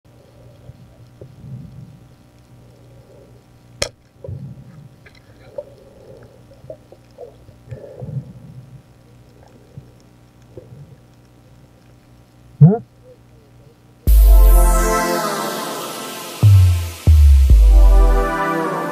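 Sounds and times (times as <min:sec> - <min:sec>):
underwater sloshing and bubbling: 0:04.1 - 0:12.0.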